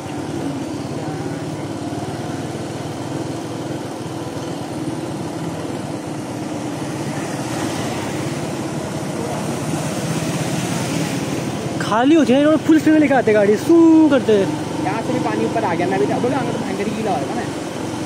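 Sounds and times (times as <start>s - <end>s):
motorcycle engine running: 0.0s - 18.0s
tyres hissing through water: 4.1s - 18.0s.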